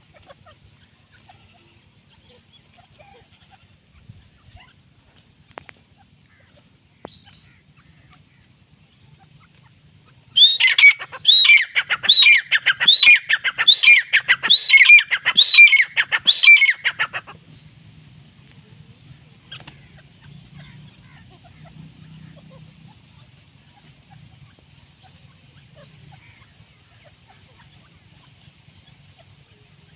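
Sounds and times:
francolin calling: 0:06.2 - 0:17.4.

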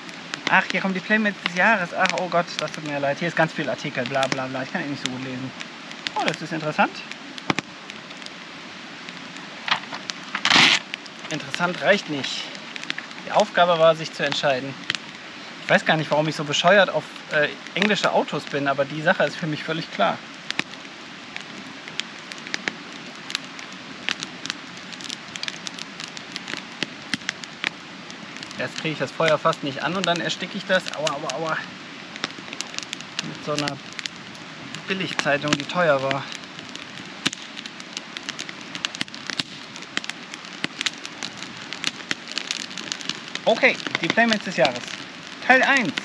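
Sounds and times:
campfire crackling and popping: 0:00.0 - 0:46.0
steady hiss: 0:00.0 - 0:46.0.

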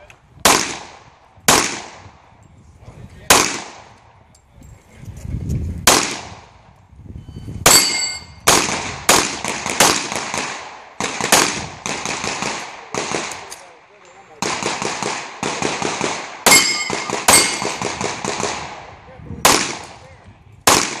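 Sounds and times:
pistol shots echoing: 0:00.4 - 0:02.2, 0:03.3 - 0:04.0, 0:07.7 - 0:13.6, 0:14.4 - 0:20.0, 0:20.7 - 0:21.0
steel target ringing: 0:07.7 - 0:08.4, 0:16.5 - 0:17.8.

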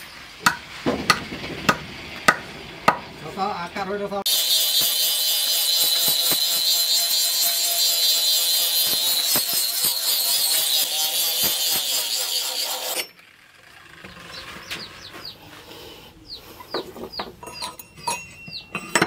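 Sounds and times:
angle grinder grinding steel: 0:04.3 - 0:15.3
chickens clucking: 0:14.0 - 0:17.6.

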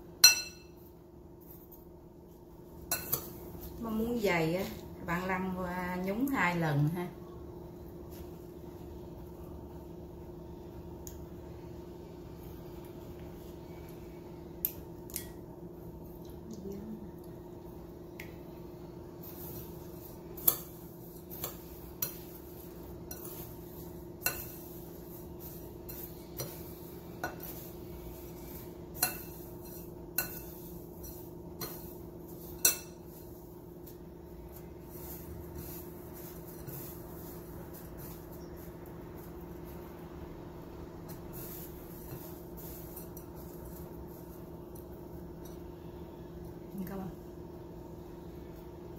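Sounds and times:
steady low hum: 0:00.0 - 0:48.9
metal spoon clinking ceramic bowl: 0:00.2 - 0:00.9.

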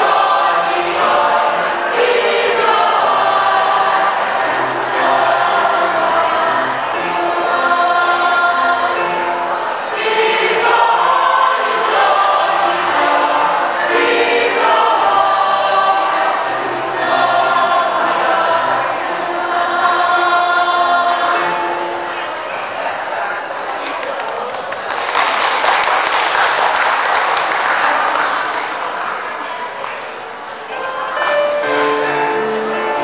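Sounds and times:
choir singing in harmony: 0:00.0 - 0:23.4, 0:30.7 - 0:33.0.

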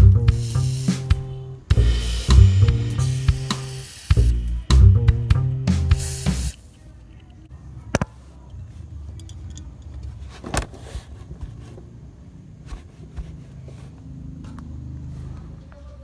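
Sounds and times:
small clicks and clinks: 0:09.1 - 0:10.2.

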